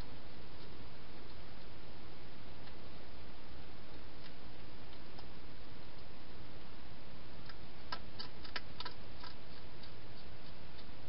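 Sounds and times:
steady hiss: 0.0 - 11.0
hedgehog feeding clicks: 7.4 - 11.0.

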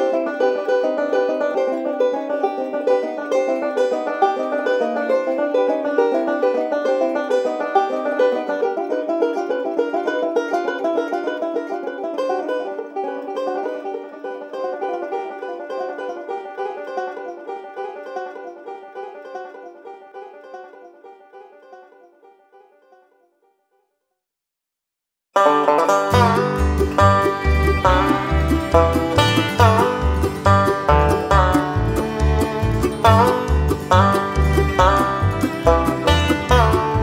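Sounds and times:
banjos playing bluegrass: 0.0 - 22.8, 25.4 - 37.0.

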